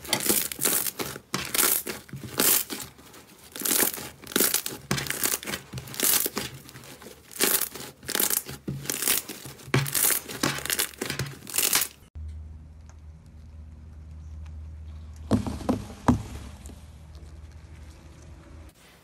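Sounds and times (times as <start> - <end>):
slime crackling and popping: 0.0 - 12.1.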